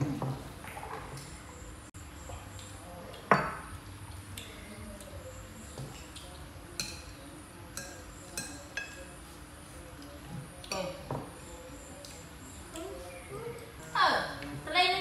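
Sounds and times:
metal spoon clinking on plate: 6.8 - 7.1, 7.7 - 9.1.

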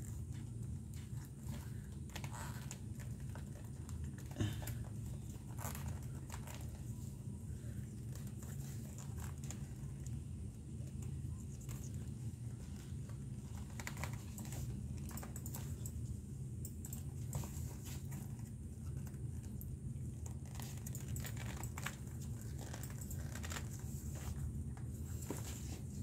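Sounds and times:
leather lace scratching and rustling: 0.0 - 4.3, 5.2 - 7.0, 7.9 - 10.1, 10.9 - 15.3, 20.2 - 24.5.

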